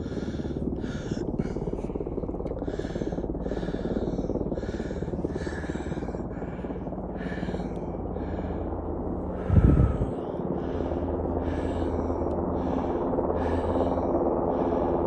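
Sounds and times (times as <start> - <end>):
helicopter rotor and engine: 0.0 - 15.0.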